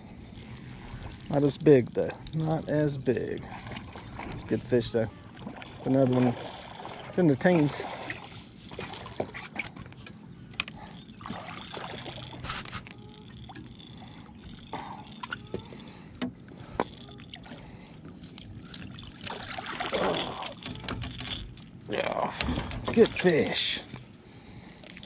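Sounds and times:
faint steady hum: 0:00.0 - 0:25.0
light water splashes: 0:00.4 - 0:10.0, 0:10.7 - 0:15.4, 0:18.3 - 0:21.4
gear clicks and knocks: 0:20.0 - 0:23.3.

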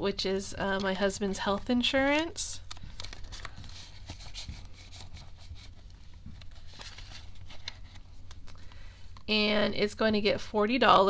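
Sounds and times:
banknotes rustling and flicking: 0:00.6 - 0:09.3.

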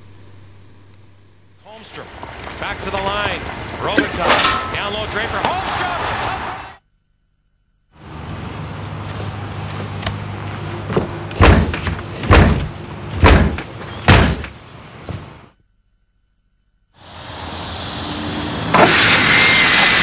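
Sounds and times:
low steady hum: 0:00.0 - 0:06.0, 0:06.8 - 0:18.8
heavy thuds on a door: 0:11.0 - 0:15.3.

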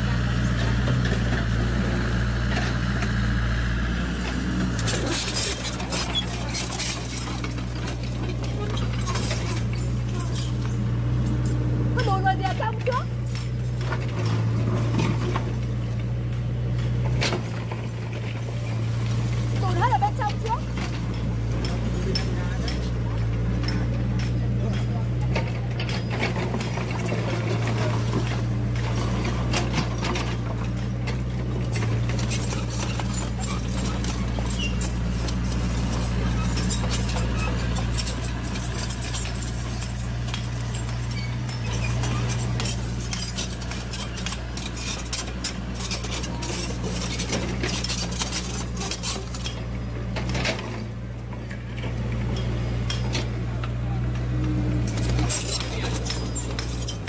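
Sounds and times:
model excavator motors humming: 0:00.0 - 0:57.0.

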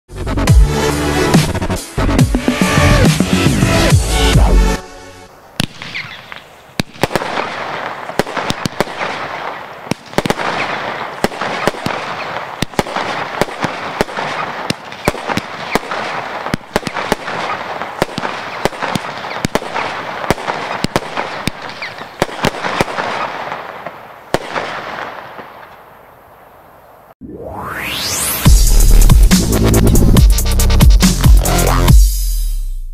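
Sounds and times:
fireworks crackling: 0:00.7 - 0:26.7, 0:27.6 - 0:31.9.

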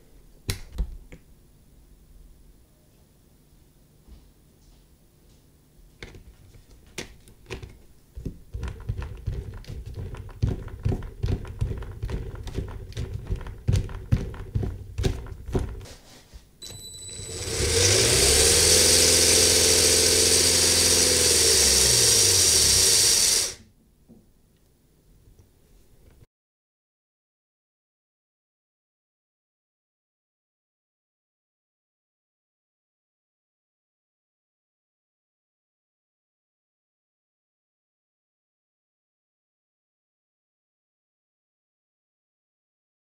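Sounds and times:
electric motor whine: 0:16.6 - 0:23.6.

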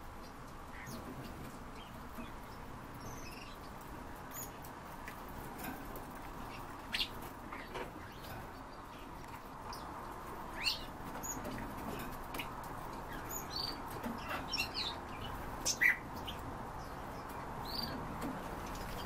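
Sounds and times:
small cage birds chirping: 0:00.0 - 0:19.0.

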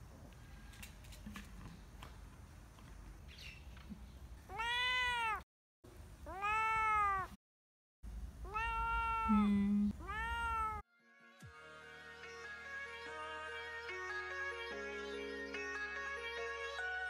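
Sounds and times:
kitten meowing: 0:04.5 - 0:05.4, 0:06.3 - 0:07.4, 0:08.4 - 0:10.8
low steady hum: 0:08.1 - 0:10.3.

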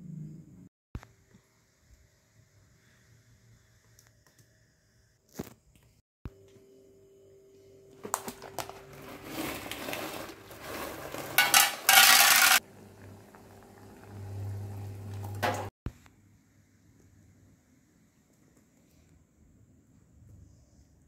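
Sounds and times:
plastic rustling: 0:08.0 - 0:12.6
pot boiling on the stove: 0:08.0 - 0:15.7
kitchen clicks and clatter: 0:11.0 - 0:12.6.

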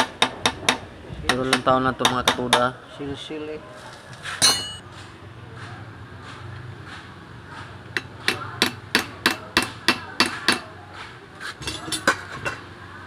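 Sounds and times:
hammer striking metal: 0:04.4 - 0:04.8.

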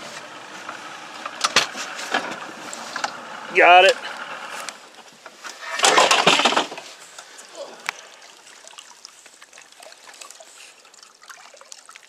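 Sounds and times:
water splashing beside a boat: 0:04.8 - 0:12.0
water trickling and dripping: 0:06.9 - 0:12.0.

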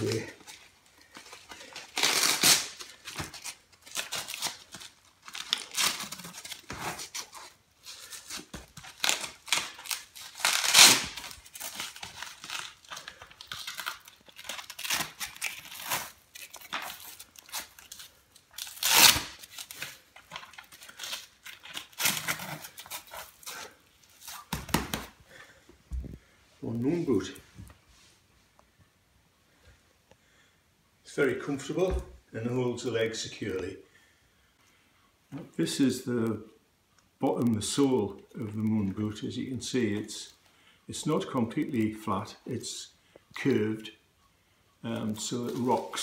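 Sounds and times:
hook-and-loop straps ripping: 0:00.0 - 0:25.2.

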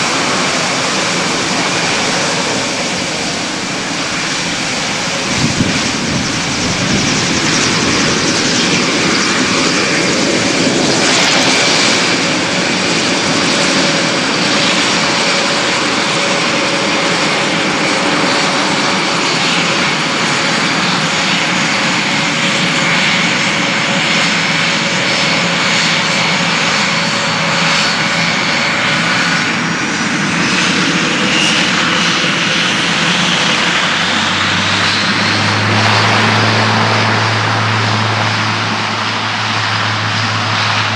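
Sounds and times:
rising engine whine: 0:00.0 - 0:22.1, 0:25.1 - 0:40.9
turboprop engines running: 0:00.0 - 0:40.9.

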